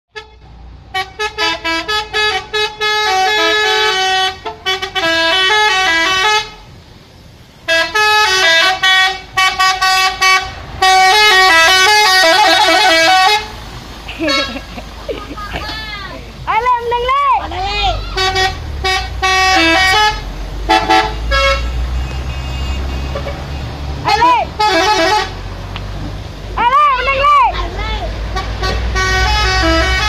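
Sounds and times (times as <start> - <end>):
multi-tone musical truck horn: 0.1 - 6.7, 7.6 - 13.6, 14.2 - 14.7, 17.9 - 25.6, 28.2 - 30.0.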